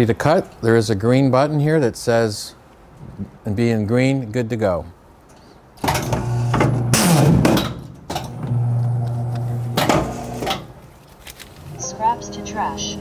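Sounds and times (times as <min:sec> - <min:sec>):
paper cutter motor hum: 0:08.5 - 0:10.6.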